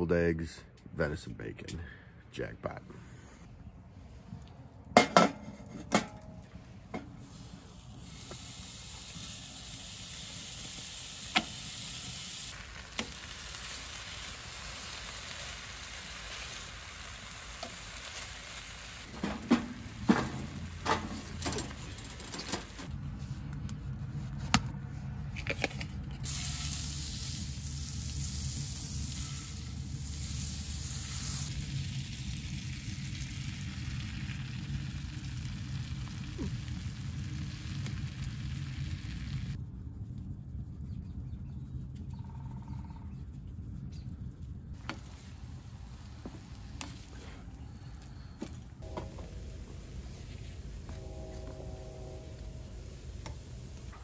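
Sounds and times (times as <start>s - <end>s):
bacon sizzling in a frying pan: 8.0s - 19.1s, 26.2s - 39.6s.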